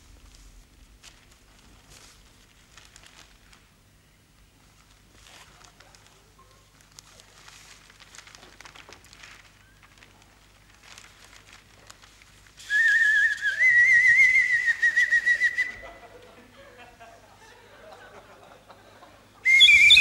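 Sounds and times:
newspaper pages rustling: 0.1s - 3.7s, 4.6s - 12.9s
bird call whistle warbling: 19.4s - 20.0s.

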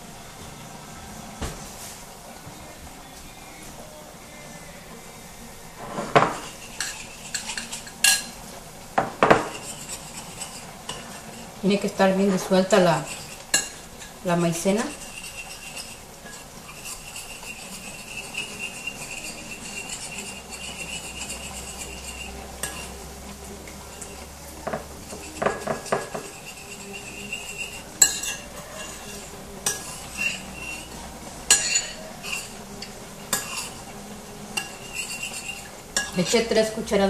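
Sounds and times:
spoon scraping ceramic bowl: 5.8s - 8.4s, 9.2s - 23.0s, 23.8s - 33.9s, 34.6s - 36.6s
spoon clinking against bowl: 6.2s - 8.4s, 14.9s - 23.0s, 23.9s - 30.9s, 31.5s - 33.8s.

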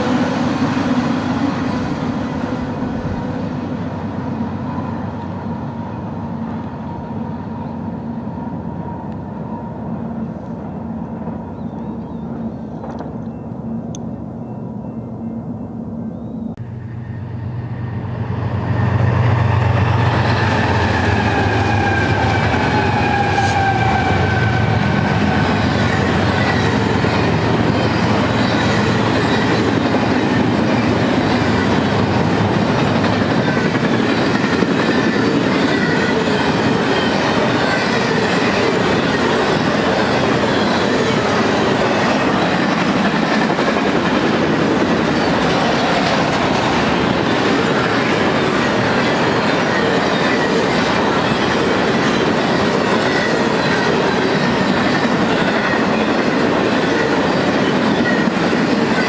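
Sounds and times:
train low rumble: 0.0s - 59.0s
train wheels clattering on rail: 17.9s - 59.0s.

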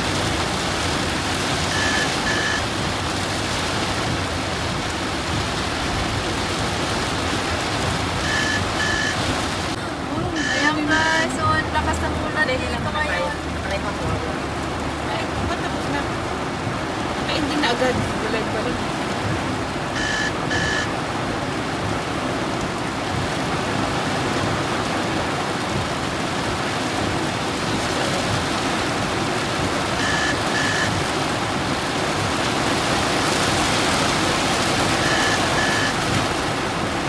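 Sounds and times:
heavy rain on car roof: 0.0s - 37.0s
short high electronic beeps: 1.7s - 2.6s, 8.2s - 9.2s, 20.0s - 20.9s, 30.0s - 30.9s, 35.0s - 36.0s.

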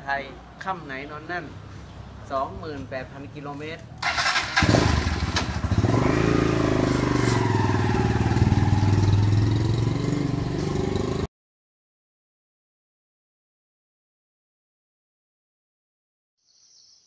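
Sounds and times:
motorcycle engine starting and revving: 4.0s - 11.3s.

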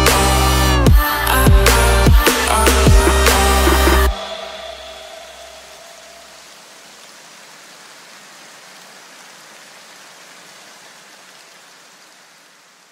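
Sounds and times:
electronic music: 0.0s - 6.4s
steady rain-like hiss: 1.8s - 12.9s.

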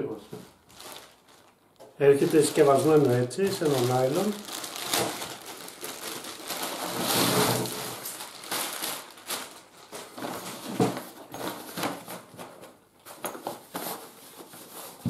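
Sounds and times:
plastic packaging crinkling: 0.5s - 12.8s.

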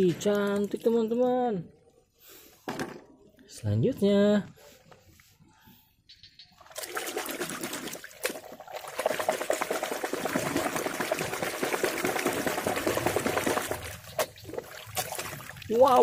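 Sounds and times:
muddy water sloshing: 6.6s - 16.0s.

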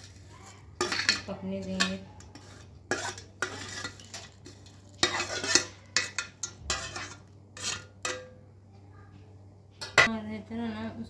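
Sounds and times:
spoon scraping against bowl: 0.0s - 8.4s.

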